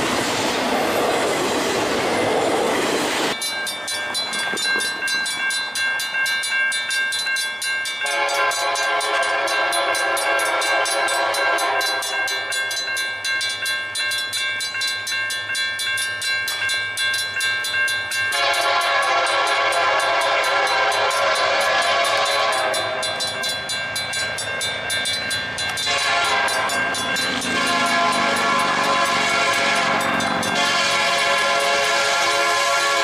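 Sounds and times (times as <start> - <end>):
locomotive air horn: 8.0 - 12.2, 18.3 - 23.1, 25.8 - 33.0.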